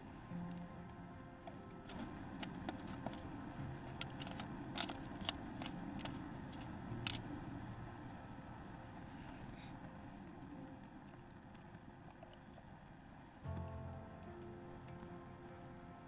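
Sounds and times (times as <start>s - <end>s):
gas stove burning: 1.8s - 13.6s.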